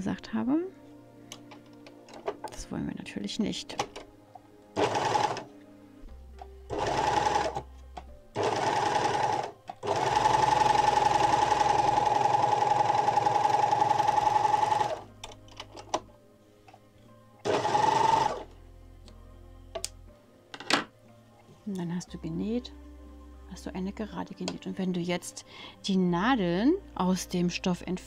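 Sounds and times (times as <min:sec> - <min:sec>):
overlock sewing machine stitching: 0:04.8 - 0:05.5, 0:06.7 - 0:07.6, 0:08.4 - 0:15.0, 0:17.4 - 0:18.5.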